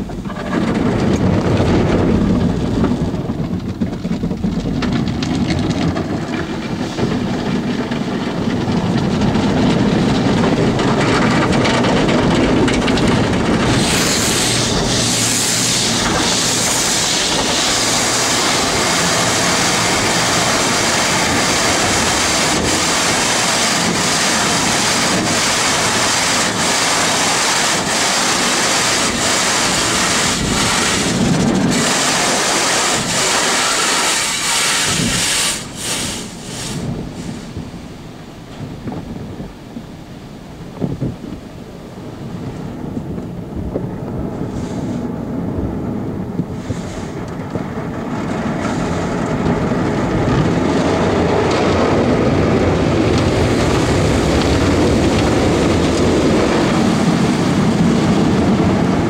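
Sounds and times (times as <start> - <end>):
low rumble: 0.0 - 33.6
water splashing on car: 0.0 - 59.0
loud spray hiss: 13.6 - 37.6.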